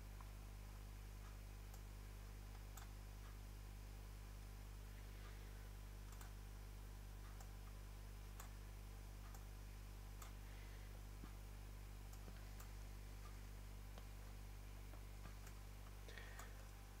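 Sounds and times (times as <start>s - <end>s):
low electrical hum: 0.0s - 17.0s
computer mouse clicks: 6.0s - 6.4s.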